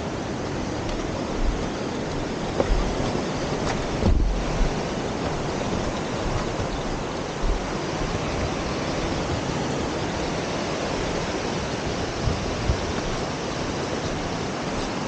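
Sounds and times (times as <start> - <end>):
surf breaking on beach: 0.0 - 15.0
wind on microphone: 0.0 - 15.0
soft low thumps: 1.4 - 9.6.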